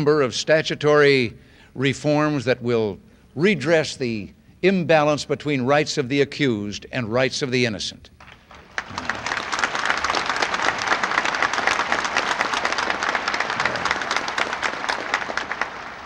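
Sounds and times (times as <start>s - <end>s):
audience applauding: 8.2s - 16.0s.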